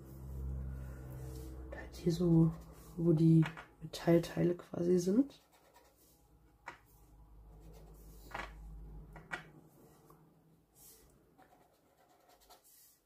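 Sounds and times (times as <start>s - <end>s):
tool scratching on paper: 5.3s - 6.2s, 10.9s - 13.0s.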